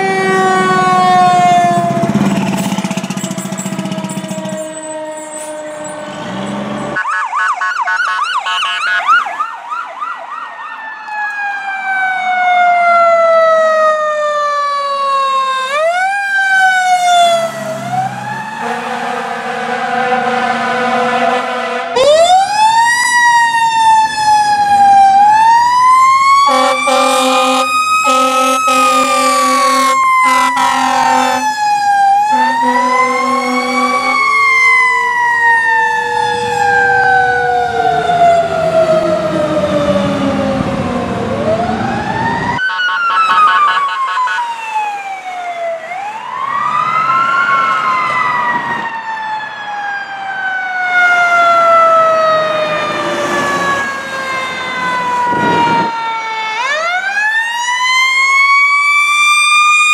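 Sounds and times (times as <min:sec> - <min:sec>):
horn blasts: 0:00.0 - 0:06.8, 0:17.3 - 0:22.2, 0:26.5 - 0:31.6, 0:32.2 - 0:34.3
fire engine sirens wailing: 0:00.0 - 0:59.9.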